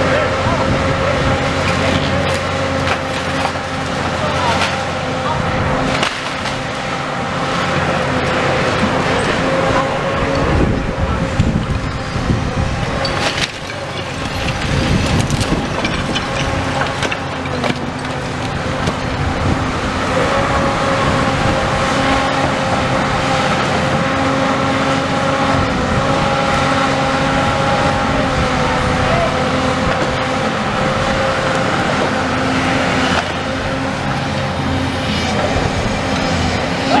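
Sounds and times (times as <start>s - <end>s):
diesel engine running: 0.0s - 37.0s
hydraulic whine: 0.0s - 37.0s
bricks and rubble crashing down: 13.0s - 19.0s.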